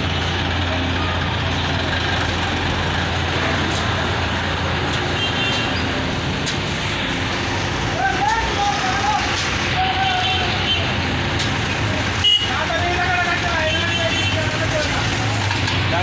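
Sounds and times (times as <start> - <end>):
truck driving slowly past: 0.0 - 5.2
diesel excavator idling: 0.0 - 16.0.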